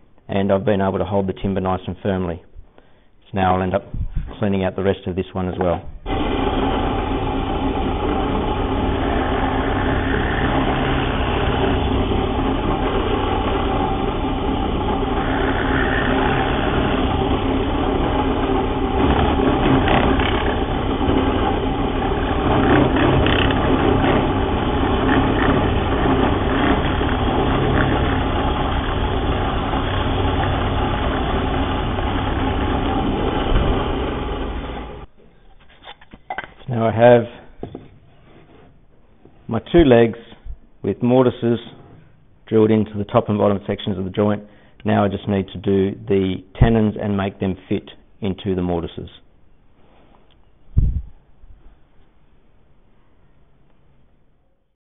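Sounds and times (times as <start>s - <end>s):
drill press boring into wood: 6.1s - 35.1s.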